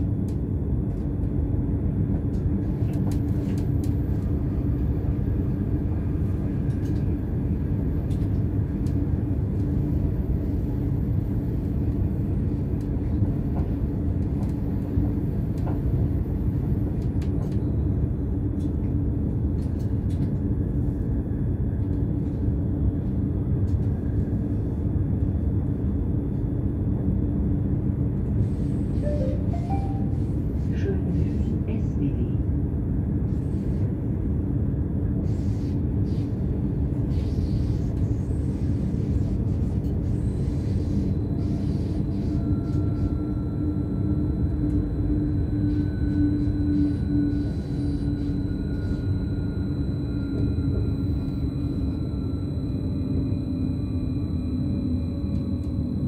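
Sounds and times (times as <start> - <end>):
wheels rumbling on rail: 0.0 - 56.0
steady hum: 38.0 - 56.0.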